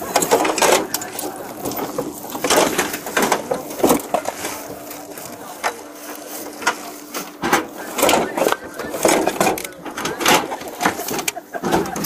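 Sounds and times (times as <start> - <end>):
clothes rustling and crinkling: 0.0 - 12.0
faint steady hum: 0.0 - 12.0.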